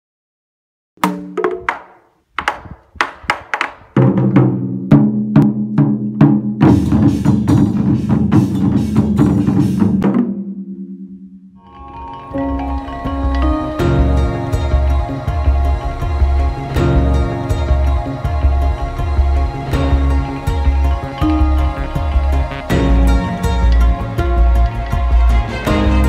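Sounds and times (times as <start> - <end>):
barrel drums struck with sticks: 1.0 - 10.8.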